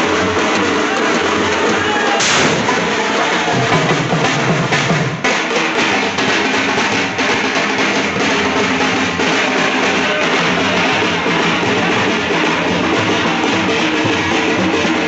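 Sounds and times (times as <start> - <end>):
loud music with drum beat: 0.0 - 15.0
sharp hit: 2.2 - 3.7.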